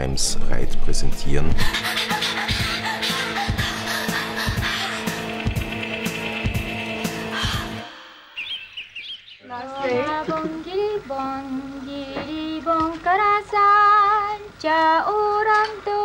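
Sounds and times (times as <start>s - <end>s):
background music: 1.1s - 8.7s
high warble: 1.6s - 9.7s
woman singing with vibrato: 9.4s - 16.0s.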